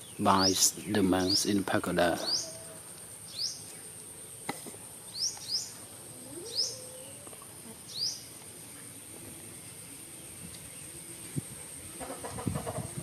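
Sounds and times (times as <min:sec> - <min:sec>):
small bird chirping: 0:02.2 - 0:04.4, 0:05.1 - 0:08.4.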